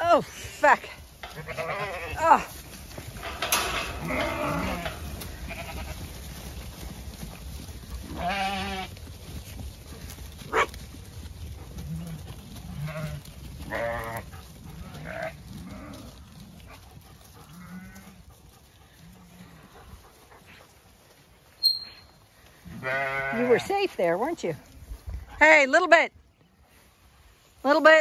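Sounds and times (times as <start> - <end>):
sheep bleating: 0.1 - 2.6, 3.8 - 6.1, 8.1 - 8.9, 11.8 - 14.2, 14.8 - 16.2, 22.6 - 23.8
brief high squeak: 21.6 - 22.2.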